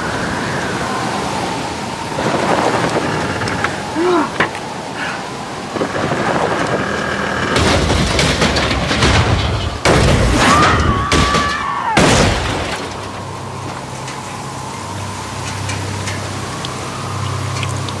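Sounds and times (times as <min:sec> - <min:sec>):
quad bike crash impacts: 0:07.5 - 0:13.2
high wail: 0:10.4 - 0:12.1.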